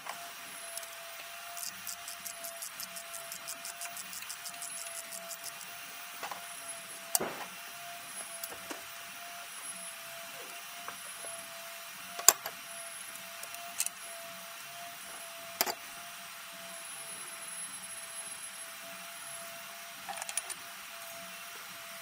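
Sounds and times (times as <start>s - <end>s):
tools clicking and knocking: 15.6s - 15.8s, 20.1s - 20.6s.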